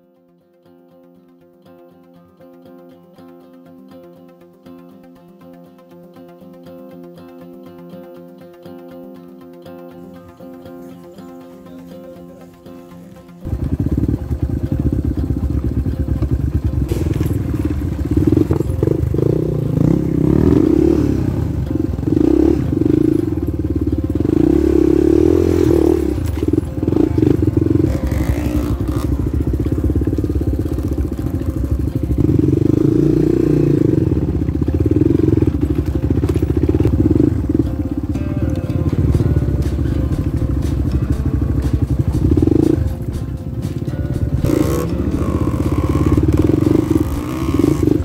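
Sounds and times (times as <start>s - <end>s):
motorcycle engine revving: 13.4s - 48.0s.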